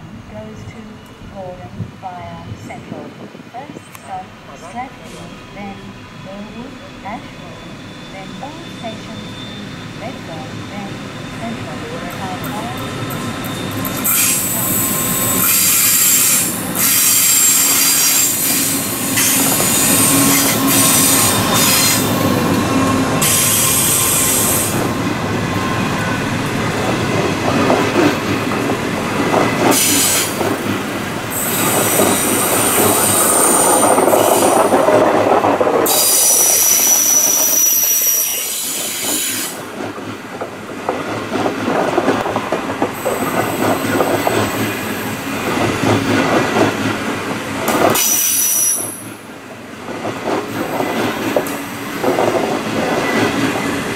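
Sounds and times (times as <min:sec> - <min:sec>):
high thin wheel squeal: 0:07.3 - 0:11.6, 0:12.6 - 0:22.2, 0:35.9 - 0:39.6
train wheels clattering over joints: 0:49.8 - 0:53.9.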